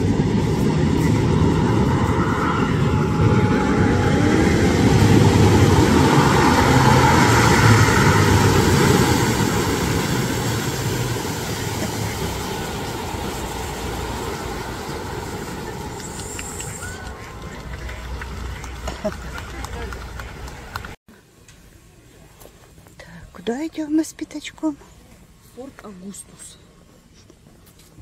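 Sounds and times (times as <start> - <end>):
rush of spray and wake: 0.0 - 20.9
boat engine passing: 0.0 - 21.0.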